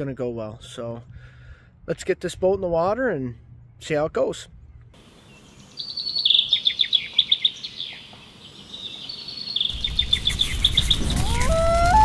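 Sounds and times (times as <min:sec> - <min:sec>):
songbird chirping: 0:03.2 - 0:12.0.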